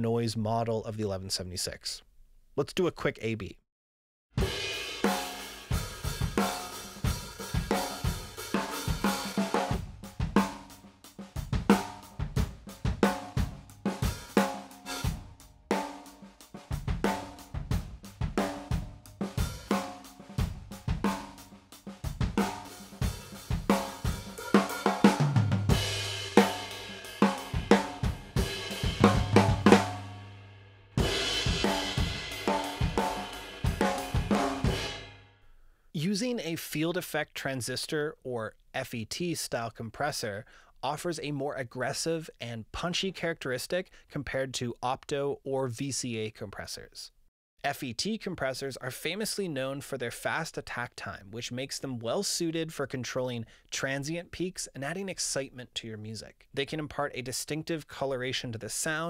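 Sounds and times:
drum kit loop: 4.4 - 30.3, 31.0 - 35.2.

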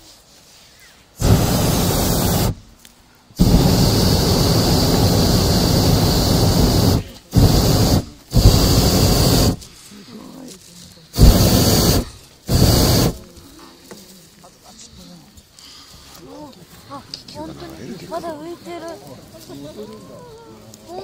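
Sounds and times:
propane burner blasts: 1.2 - 2.7, 3.4 - 9.7, 11.1 - 13.2.

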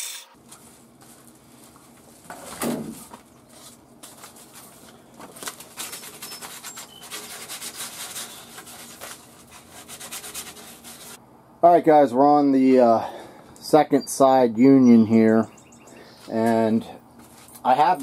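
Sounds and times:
sandpaper rasping on plastic pipe: 5.6 - 11.2.

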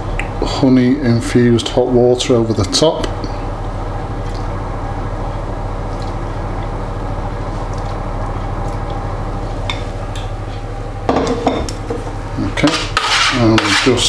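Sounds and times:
low machine hum: 0.0 - 14.0
kitchenware clatter: 11.1 - 12.0.

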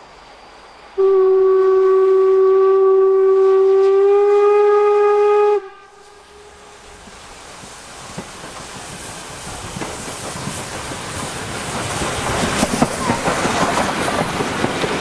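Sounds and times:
steam locomotive whistle blast: 1.0 - 7.0.

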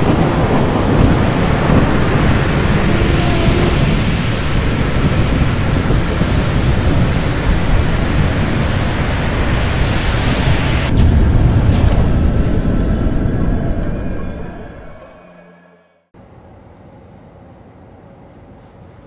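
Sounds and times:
heavy rain rushing: 0.0 - 12.2
thunder crack: 0.0 - 13.9
low thunder rumble: 0.0 - 14.2.

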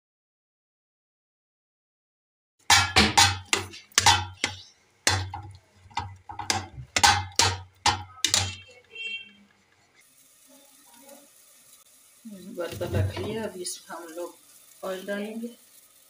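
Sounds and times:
metal spoon clanking on pot: 2.7 - 8.7
pot ringing: 2.7 - 8.8.

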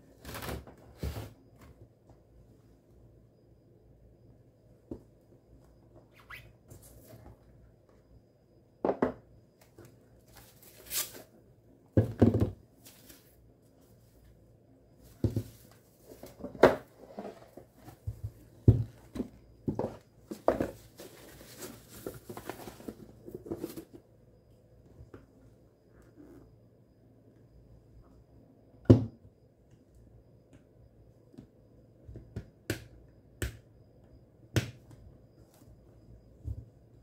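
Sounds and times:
box knocks on wooden desk: 12.0 - 12.6, 28.9 - 29.2.

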